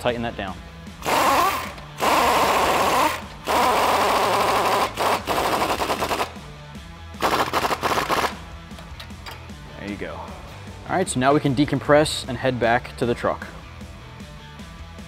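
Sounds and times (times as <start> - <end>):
pneumatic impact wrench hammering: 1.0 - 6.4, 7.2 - 8.4.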